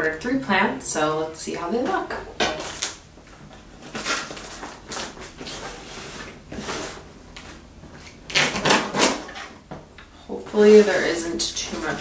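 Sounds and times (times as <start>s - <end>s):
cardboard rustling: 3.8s - 7.6s
knife slicing packing tape: 8.3s - 9.4s.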